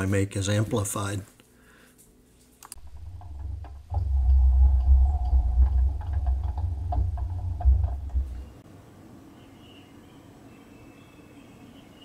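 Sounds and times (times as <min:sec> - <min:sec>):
lathe handwheel rumble: 0:02.8 - 0:08.6.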